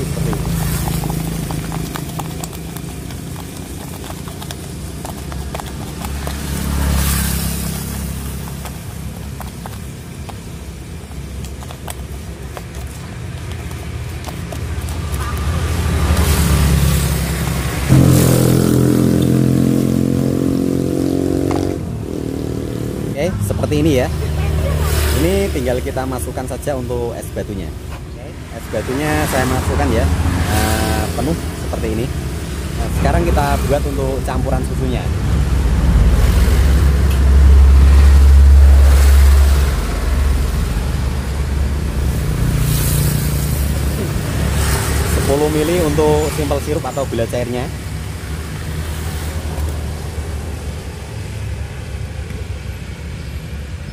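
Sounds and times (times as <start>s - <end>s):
vehicle engine passing close: 0.0s - 10.0s, 14.8s - 27.7s, 28.3s - 53.2s
motorcycle engine running: 0.0s - 26.4s
road traffic rumble: 0.0s - 53.9s.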